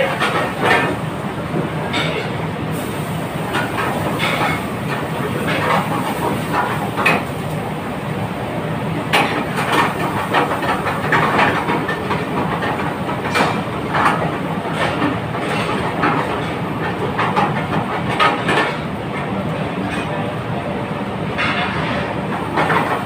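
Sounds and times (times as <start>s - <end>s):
metal clanks and knocks: 21.4s - 22.9s.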